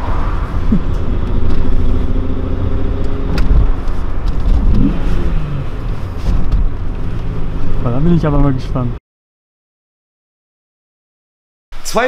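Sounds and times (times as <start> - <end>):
car engine pulling heard from cabin: 0.0 - 8.9.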